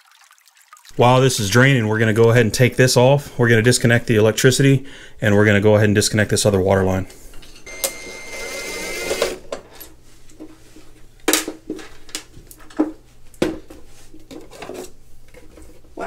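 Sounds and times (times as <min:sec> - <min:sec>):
cordless drill whining: 0:07.7 - 0:09.4.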